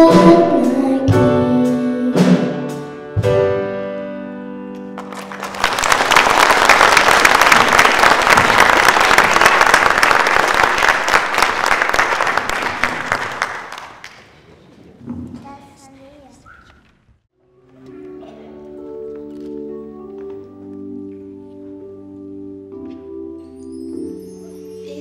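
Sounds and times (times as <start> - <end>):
audience applauding: 5.0 - 14.4.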